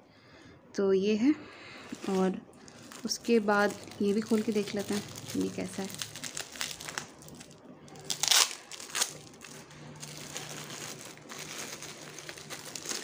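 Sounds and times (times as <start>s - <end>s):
paper and plastic wrap crinkling: 1.7s - 13.0s.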